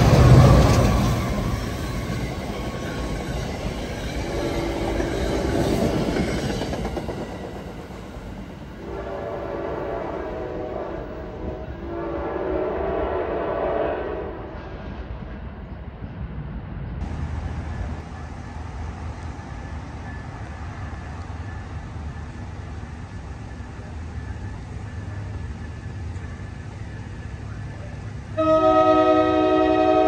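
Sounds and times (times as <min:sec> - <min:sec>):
train horn chord: 0:08.8 - 0:14.6, 0:28.4 - 0:30.0.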